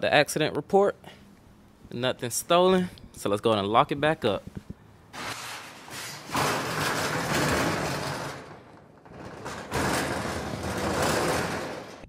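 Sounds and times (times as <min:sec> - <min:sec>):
metal roll-up door pulled down: 0:05.2 - 0:12.0.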